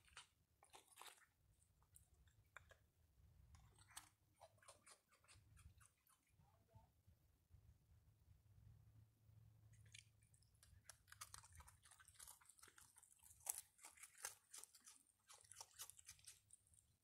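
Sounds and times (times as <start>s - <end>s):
animal crunching dry treats: 0.0s - 2.8s, 9.8s - 17.0s.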